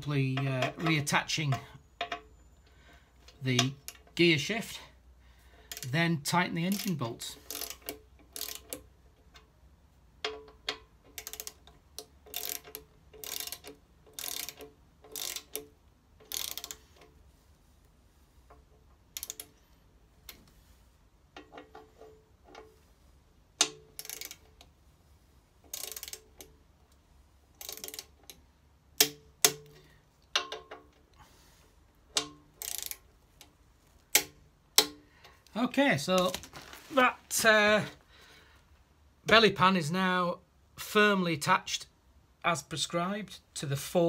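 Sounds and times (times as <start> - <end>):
ratchet clicking: 5.7 - 5.9, 6.7 - 9.5, 10.2 - 17.2, 19.0 - 19.6, 23.6 - 24.7, 25.6 - 26.6, 27.5 - 28.4, 32.1 - 35.0
torque wrench clicks: 5.7 - 5.9, 6.7 - 9.4, 10.2 - 17.1, 19.1 - 19.6, 23.6 - 24.7, 25.7 - 26.6, 27.6 - 28.4, 32.1 - 33.0.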